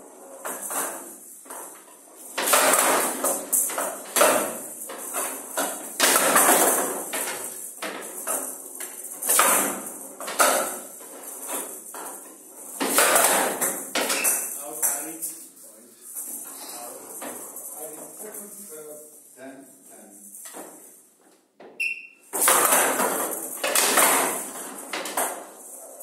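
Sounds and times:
ball hitting wooden sides: 2.4 - 10.9, 12.8 - 14.5, 21.6 - 25.5.

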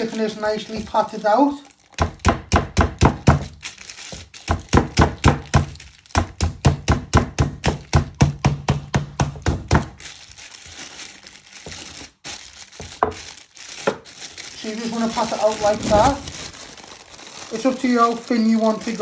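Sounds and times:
plastic bag crinkling: 0.0 - 2.3, 3.2 - 6.4, 9.6 - 19.0
meat mallet thudding: 1.9 - 10.0.

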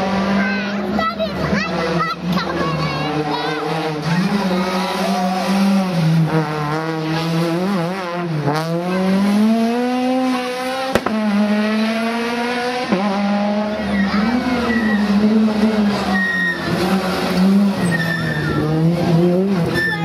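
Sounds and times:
rally car engine accelerating: 0.0 - 20.0
sharp cracks: 10.9 - 11.3.

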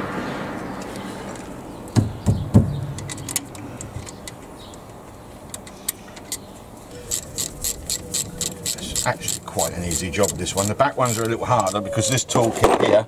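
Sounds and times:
metal knocks of brake parts: 1.9 - 11.8
sharp metallic clicks: 1.9 - 12.4.

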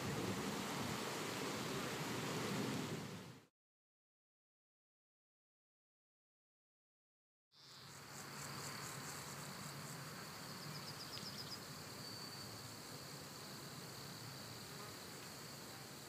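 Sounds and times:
insects chirping: 7.6 - 16.0.

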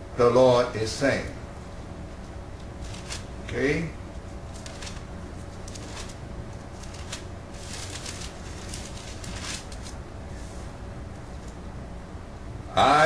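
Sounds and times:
low room hum: 0.0 - 13.0
pages rustling: 2.8 - 3.3, 4.5 - 10.0.

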